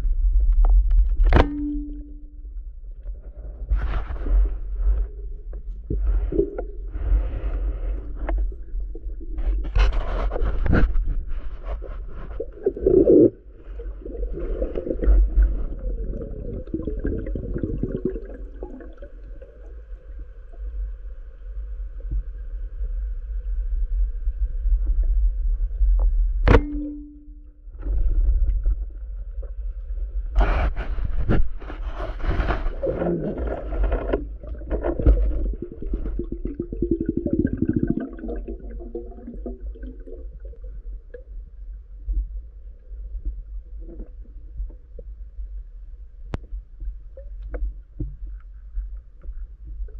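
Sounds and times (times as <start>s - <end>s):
muffled underwater rumble: 0.0s - 49.9s
scraping: 6.0s - 13.4s, 30.4s - 36.3s
bubbling: 12.0s - 20.0s, 32.4s - 41.6s.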